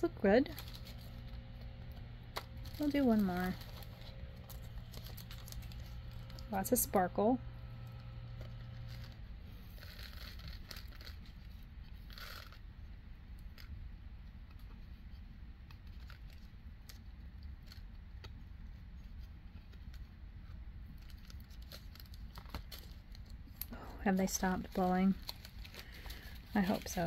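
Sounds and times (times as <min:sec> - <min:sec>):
steady low rumble: 0:00.0 - 0:14.6
small beads clicking in plastic bags: 0:09.8 - 0:11.2.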